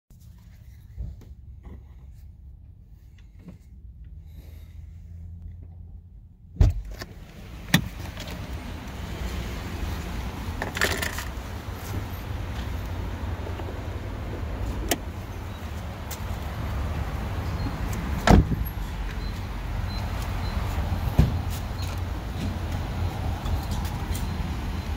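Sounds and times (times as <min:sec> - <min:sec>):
low hum outside: 0:00.1 - 0:24.9
car door thump: 0:06.6 - 0:07.0, 0:18.2 - 0:18.6
handling rattles: 0:10.6 - 0:12.0.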